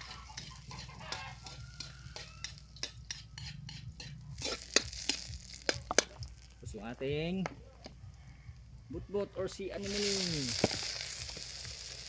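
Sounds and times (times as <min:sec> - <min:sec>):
metal spatula scraping a wok: 0:00.0 - 0:06.1
food sizzling in hot oil: 0:00.0 - 0:06.7, 0:09.7 - 0:12.0.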